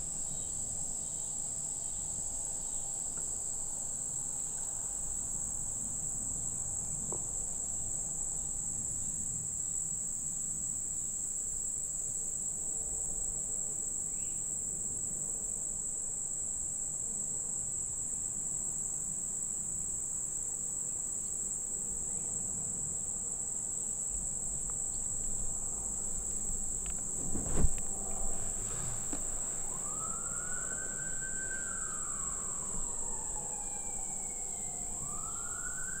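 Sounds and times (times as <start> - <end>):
insect chorus: 0.0 - 36.0
siren wailing: 29.5 - 36.0.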